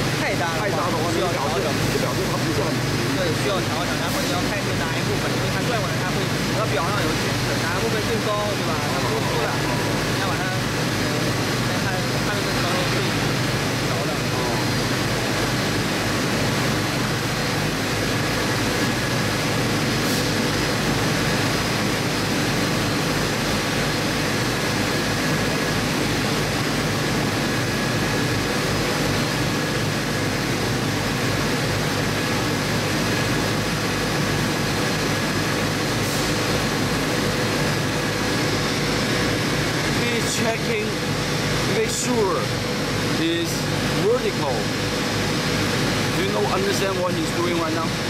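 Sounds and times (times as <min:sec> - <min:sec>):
factory machinery droning: 0:00.0 - 0:48.0.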